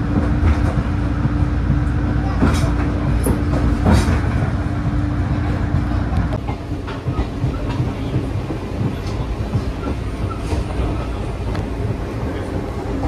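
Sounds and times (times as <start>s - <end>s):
train coach low rumble: 0.0s - 13.0s
faint clicks from wheels and track: 0.1s - 13.0s.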